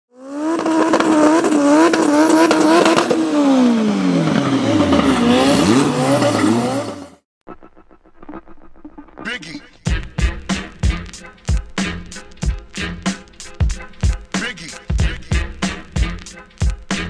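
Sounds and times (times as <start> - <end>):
race car engine revving: 0.1 - 7.2.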